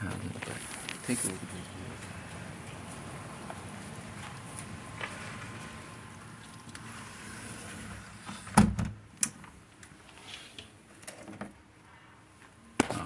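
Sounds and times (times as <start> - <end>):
sliding window shutting: 6.8 - 9.0.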